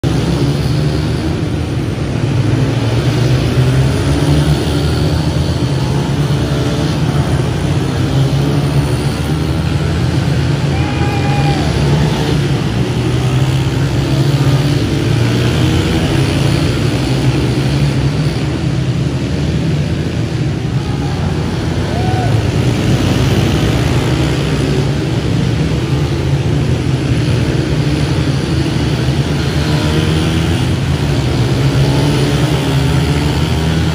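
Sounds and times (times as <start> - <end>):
dirt bike engines: 0.0 - 33.9.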